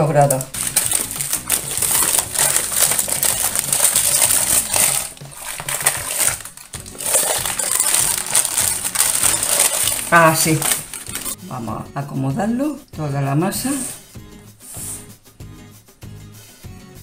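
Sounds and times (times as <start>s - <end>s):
baking paper crinkling and rustling: 0.0s - 11.4s.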